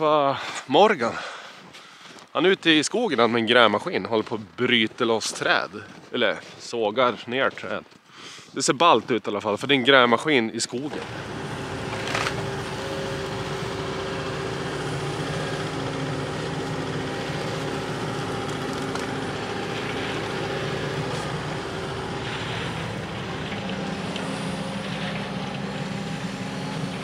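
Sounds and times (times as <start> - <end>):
hydraulic whining: 10.7 - 27.0
excavator diesel engine droning: 10.8 - 27.0.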